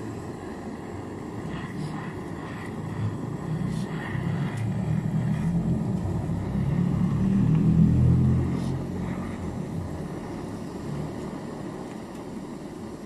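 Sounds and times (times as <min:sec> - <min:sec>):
gas torch flame rumbling: 0:00.0 - 0:13.0.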